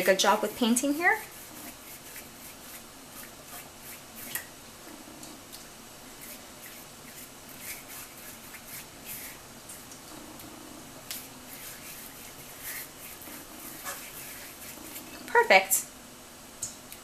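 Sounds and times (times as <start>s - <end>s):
pastry brush scraping a skillet: 0.0s - 4.4s, 6.1s - 9.4s, 11.2s - 15.8s
faint steady hiss: 0.0s - 17.0s.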